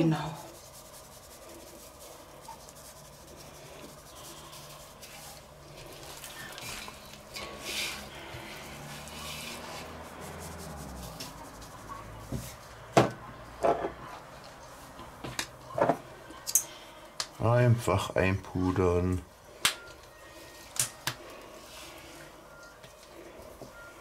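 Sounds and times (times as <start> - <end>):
hands rubbing chicken skin: 0.1 - 12.2.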